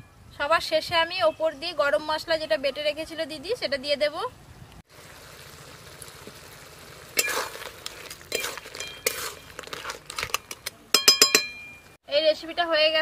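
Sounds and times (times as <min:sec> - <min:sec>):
spatula scraping a metal pan: 0:07.2 - 0:10.6
sharp metallic clinks: 0:11.0 - 0:12.0.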